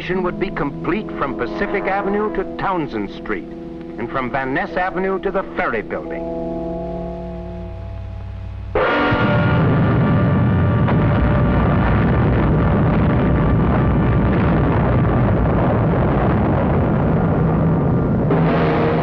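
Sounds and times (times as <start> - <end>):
loud explosion: 8.8 - 19.0.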